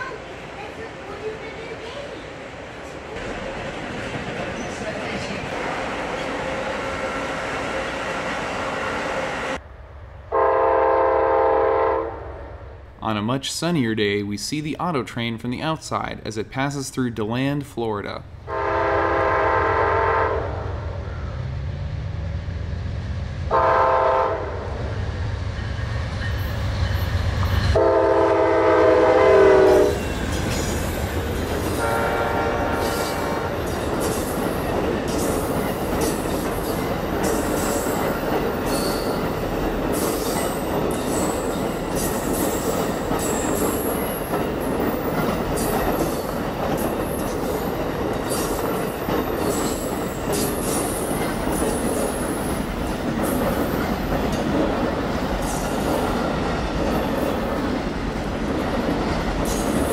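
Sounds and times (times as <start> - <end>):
train air horn blasts: 10.3 - 12.2, 18.5 - 20.6, 23.5 - 24.6, 27.8 - 30.0, 31.7 - 33.5
wheel-on-rail noise: 29.2 - 59.9.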